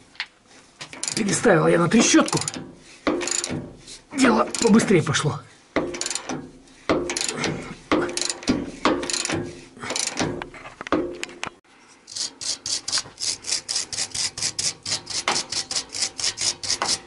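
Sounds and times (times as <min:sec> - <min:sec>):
ratchet wrench clicking: 0:01.0 - 0:01.4, 0:02.0 - 0:03.6, 0:04.5 - 0:04.8, 0:05.9 - 0:06.4, 0:07.1 - 0:07.5, 0:08.1 - 0:10.3, 0:12.1 - 0:17.0.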